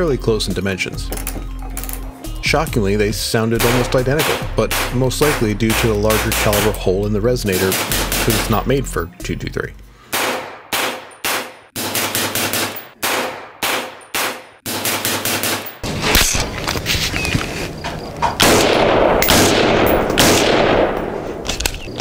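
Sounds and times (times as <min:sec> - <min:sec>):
suppressed rifle shots: 0:03.6 - 0:06.7, 0:10.1 - 0:16.4, 0:18.4 - 0:21.5.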